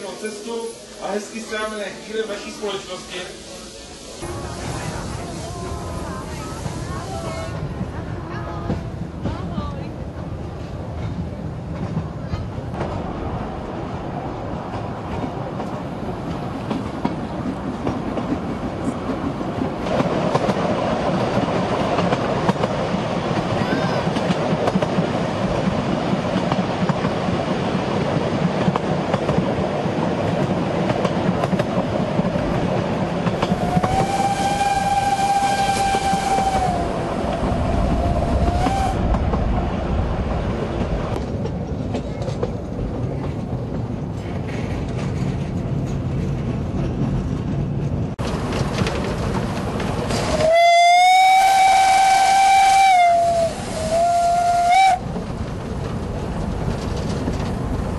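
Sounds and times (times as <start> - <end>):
train wheels clattering on track: 4.2 - 13.2, 14.6 - 39.7, 40.4 - 57.9
steam whistle blast: 33.6 - 36.9, 38.4 - 39.0, 50.3 - 55.0.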